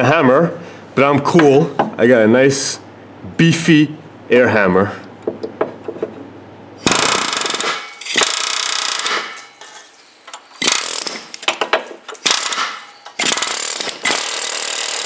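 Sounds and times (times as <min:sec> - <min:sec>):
pneumatic air hammer chattering: 0:06.8 - 0:09.7, 0:10.4 - 0:15.0.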